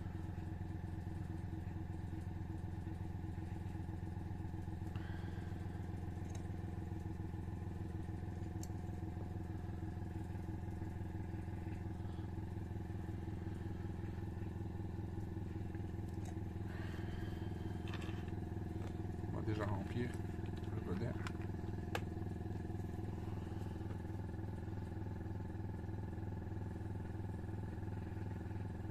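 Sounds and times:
compressor motor pulsing: 0:04.7 - 0:25.3.

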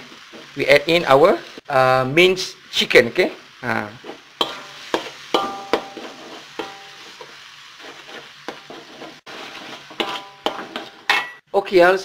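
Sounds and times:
food sizzling in a wok: 0:00.0 - 0:11.7
metal spatula scraping: 0:04.0 - 0:11.4.

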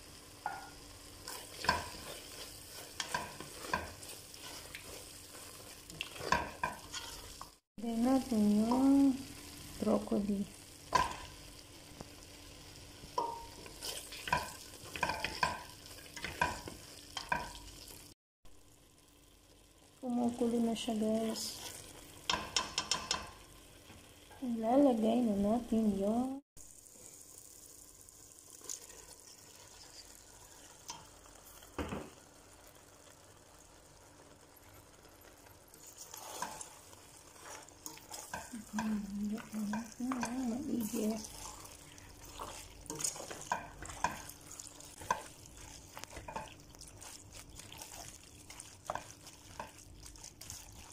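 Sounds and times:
sauce simmering: 0:00.0 - 0:24.5, 0:26.6 - 0:50.9
spatula stirring thick sauce: 0:01.1 - 0:07.6, 0:13.1 - 0:17.6, 0:21.5 - 0:23.3, 0:34.2 - 0:50.9
spatula knocking metal pot: 0:22.3 - 0:23.4.

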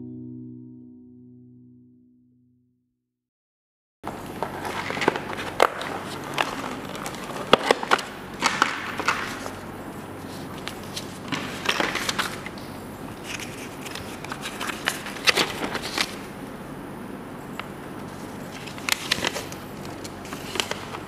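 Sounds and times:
paper and cardboard rustling: 0:04.1 - 0:16.3, 0:18.0 - 0:21.0.

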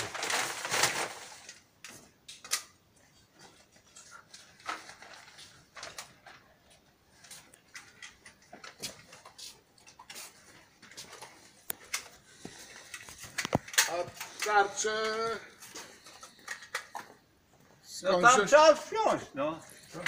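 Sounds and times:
rustling handling noise: 0:00.0 - 0:02.2, 0:02.9 - 0:18.4
small hard objects knocking: 0:12.4 - 0:17.2.

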